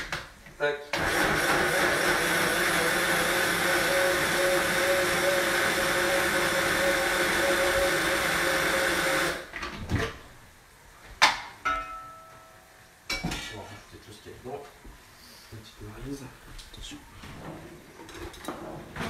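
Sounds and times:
immersion blender running: 1.0s - 9.5s.

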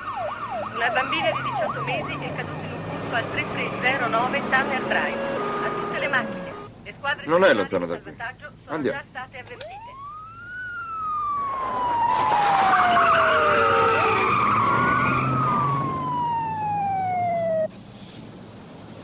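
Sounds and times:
police siren wailing: 0.0s - 6.7s, 9.6s - 17.7s
road noise: 0.0s - 19.0s
car engine: 0.1s - 6.7s, 11.2s - 18.8s.

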